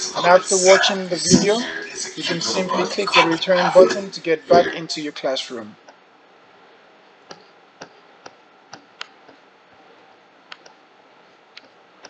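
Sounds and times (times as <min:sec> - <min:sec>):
computer mouse clicking: 0:10.5 - 0:10.8.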